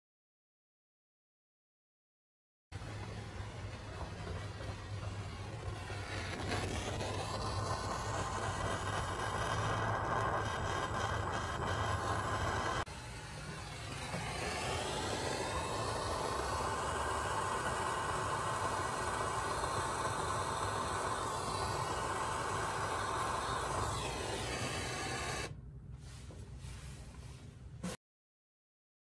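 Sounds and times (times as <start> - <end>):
gas torch flame hissing: 2.8 - 25.6.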